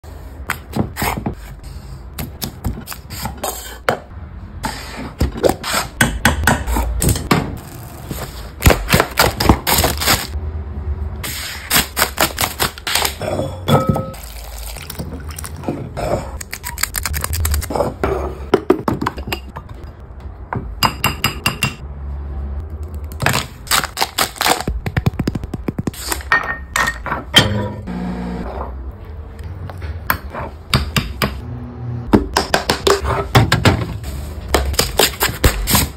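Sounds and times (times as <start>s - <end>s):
wrapper being torn open: 9.2s - 10.3s.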